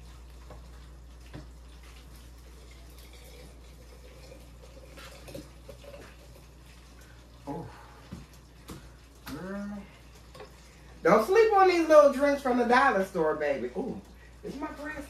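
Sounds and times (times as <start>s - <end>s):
drink pouring into a glass: 1.4s - 6.8s.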